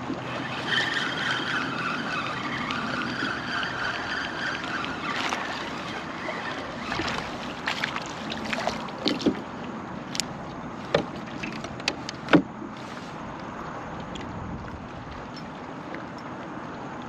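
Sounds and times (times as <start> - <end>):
water lapping around a kayak: 0.0 - 17.0
fish splashing into water: 2.3 - 9.4.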